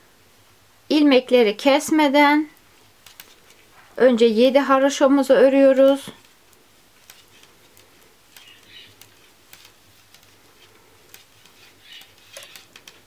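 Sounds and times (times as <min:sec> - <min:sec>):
yarn rustling: 0:05.4 - 0:13.0
metal knitting needles clicking: 0:05.8 - 0:13.0.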